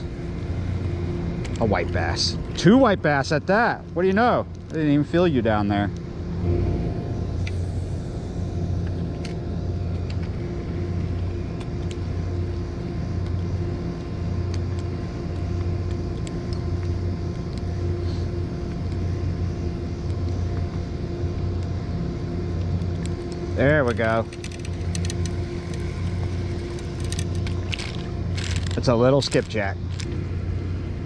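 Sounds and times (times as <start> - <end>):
machinery droning: 0.0 - 31.0.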